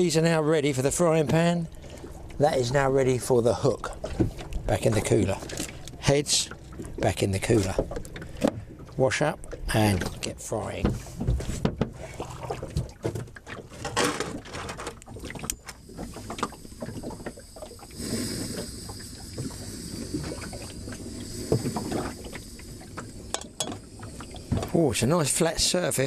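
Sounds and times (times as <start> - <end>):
gas hissing: 16.8 - 24.6.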